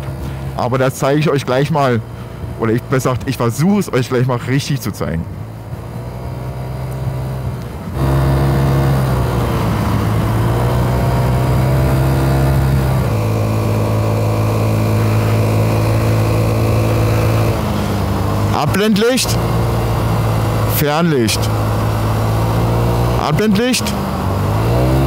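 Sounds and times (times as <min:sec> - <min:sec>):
vehicle engine humming: 0:00.0 - 0:25.0.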